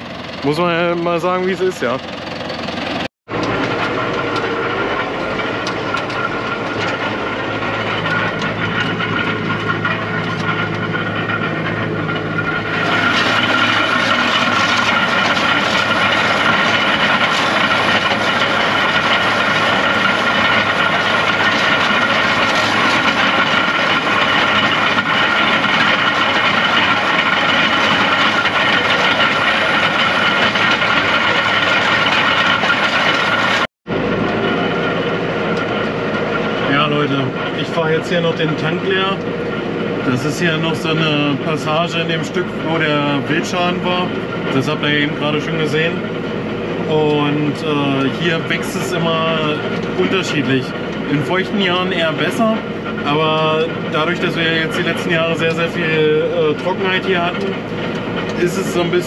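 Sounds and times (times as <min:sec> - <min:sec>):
harrow tines rattling: 0:00.0 - 0:33.7
high whine: 0:00.0 - 0:59.0
tractor engine under load: 0:00.0 - 0:59.0.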